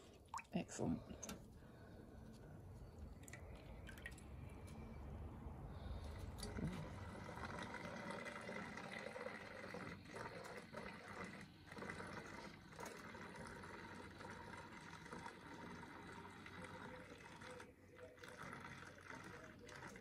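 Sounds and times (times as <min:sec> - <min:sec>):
water trickling into bottle: 0:00.0 - 0:01.4, 0:02.8 - 0:04.6.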